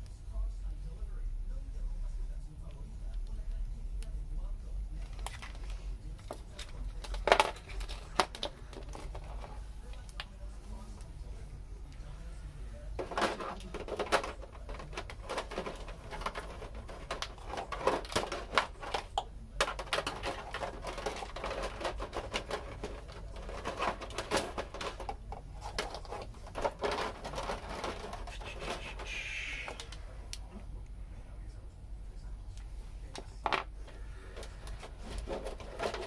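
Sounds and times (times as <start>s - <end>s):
objects being handled: 5.0s - 11.2s, 12.8s - 30.5s, 32.6s - 36.0s.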